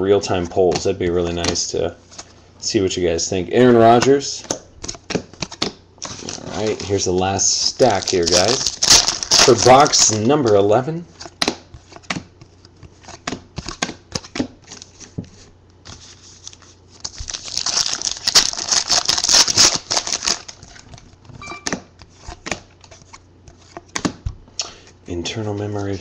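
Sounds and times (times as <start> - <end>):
cards tapping and clicking: 4.0 - 5.8, 11.3 - 15.3, 21.6 - 24.5
rustling and crinkling: 7.8 - 10.6, 14.6 - 21.4.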